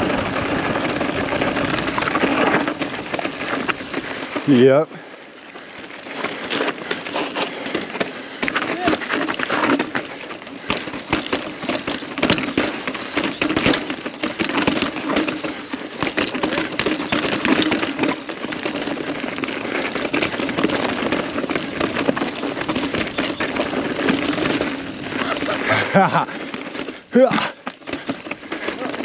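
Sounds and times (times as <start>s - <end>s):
mountain bike clattering over rocks: 0.0s - 29.0s.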